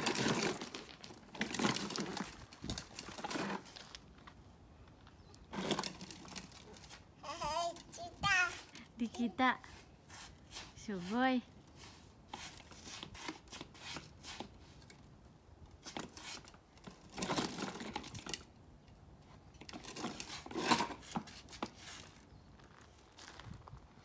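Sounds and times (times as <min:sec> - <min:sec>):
plastic wheels grinding on concrete: 0:00.0 - 0:04.0, 0:05.4 - 0:07.0, 0:15.8 - 0:18.5, 0:19.6 - 0:22.2.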